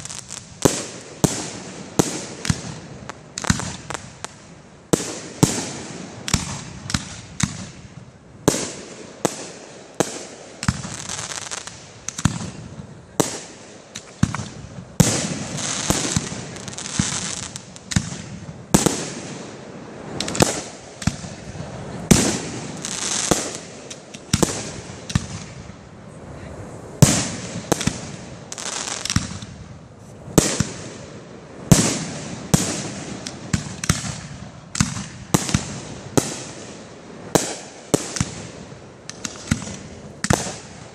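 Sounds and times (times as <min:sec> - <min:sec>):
firework shells bursting: 0:13.2 - 0:25.6, 0:31.7 - 0:40.9.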